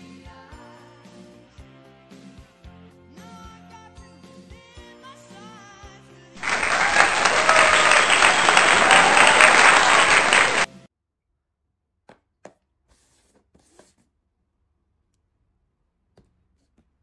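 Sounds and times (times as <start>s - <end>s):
background music: 0.0s - 9.4s
crowd applause and cheering: 6.4s - 10.7s.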